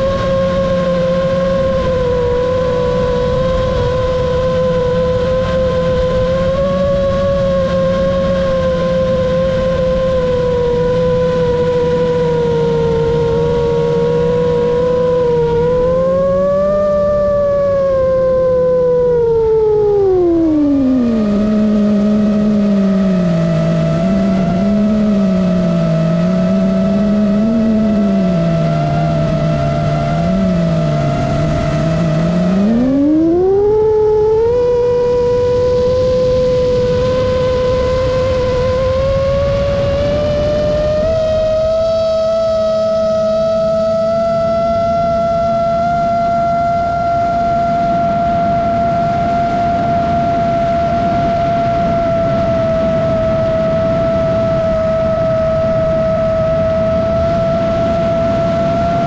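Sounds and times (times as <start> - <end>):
drone propellers whining: 0.0 - 59.0.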